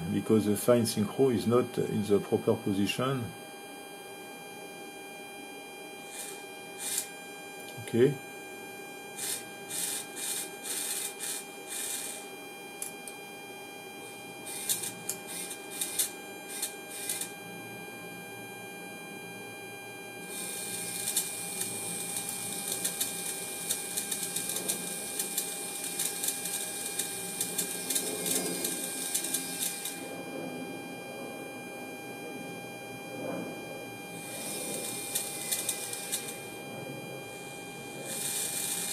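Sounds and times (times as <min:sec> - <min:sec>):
servo motor and gears whirring: 0:06.1 - 0:07.1, 0:09.2 - 0:12.2, 0:14.5 - 0:17.3, 0:22.6 - 0:30.0, 0:34.2 - 0:36.4, 0:38.1 - 0:38.9.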